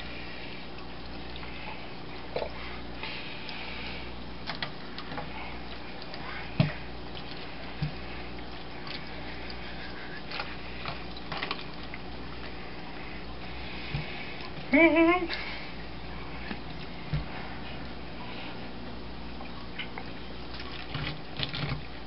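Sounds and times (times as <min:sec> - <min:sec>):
steady low hum: 0:00.0 - 0:22.0
wet knocks and scrapes: 0:06.1 - 0:12.6, 0:19.8 - 0:21.9.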